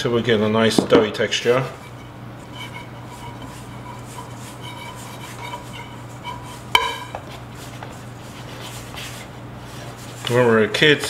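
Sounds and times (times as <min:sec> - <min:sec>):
hands mixing dough in bowl: 0:00.1 - 0:11.0
metal bowl ringing: 0:01.8 - 0:07.2.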